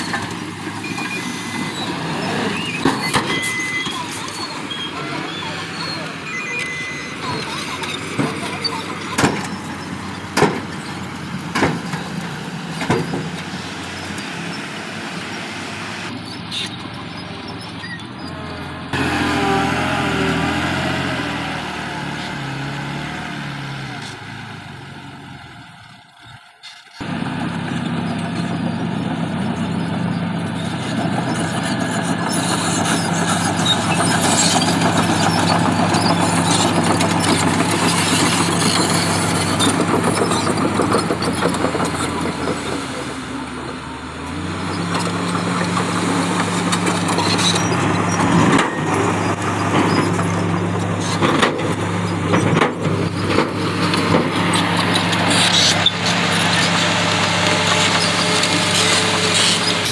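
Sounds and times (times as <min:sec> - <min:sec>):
diesel truck engine running: 0:00.0 - 0:59.9.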